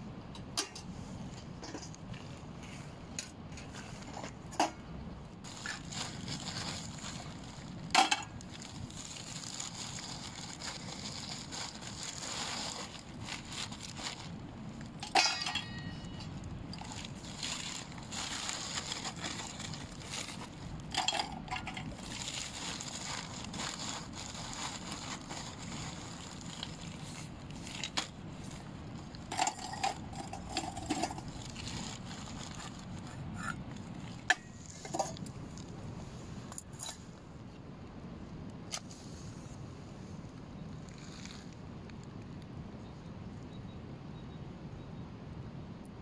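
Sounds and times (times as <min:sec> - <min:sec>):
charcoal clinking on metal: 0:15.0 - 0:17.0.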